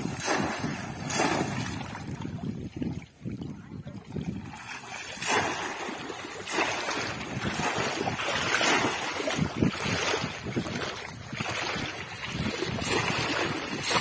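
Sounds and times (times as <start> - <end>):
water splashing and churning: 0.0 - 14.0.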